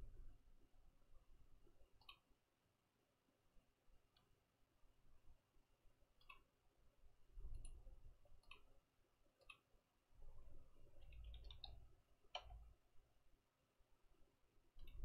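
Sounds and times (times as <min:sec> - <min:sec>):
computer mouse clicks: 0:01.8 - 0:02.3, 0:04.1 - 0:04.4, 0:06.2 - 0:06.5, 0:07.4 - 0:08.8, 0:09.4 - 0:09.7, 0:10.4 - 0:12.8, 0:14.8 - 0:15.0
faint low rumbles: 0:07.2 - 0:08.6.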